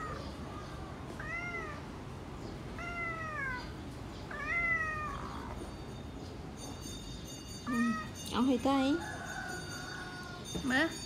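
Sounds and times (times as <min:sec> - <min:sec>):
cat meowing: 0:01.2 - 0:01.9, 0:02.8 - 0:03.7, 0:04.3 - 0:05.6.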